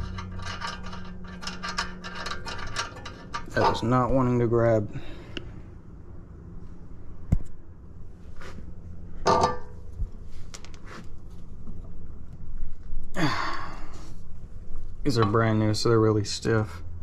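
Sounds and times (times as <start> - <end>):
small metal clicks and knocks: 0.0 - 4.2.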